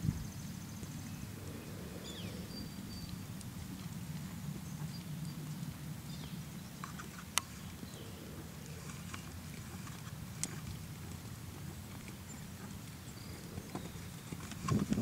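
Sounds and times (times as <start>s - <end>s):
low rumble: 1.0s - 3.8s.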